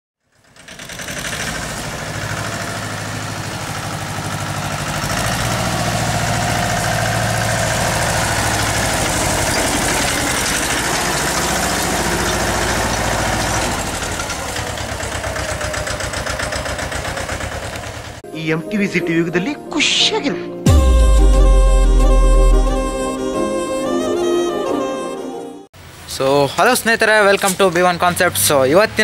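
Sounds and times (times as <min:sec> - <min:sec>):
tractor diesel engine running: 0:00.2 - 0:18.2.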